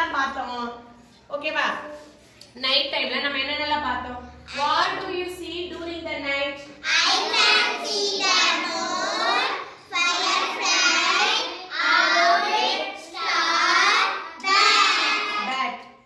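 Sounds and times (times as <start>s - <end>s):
children chanting in unison: 6.8s - 15.5s.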